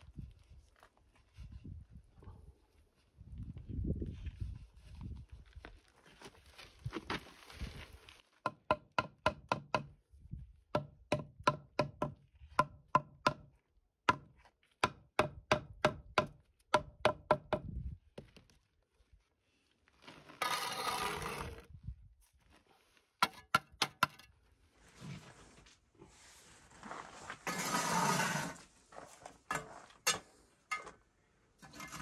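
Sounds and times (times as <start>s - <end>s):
trowel scraping mortar: 20.1s - 21.7s, 26.8s - 28.7s, 31.6s - 32.0s.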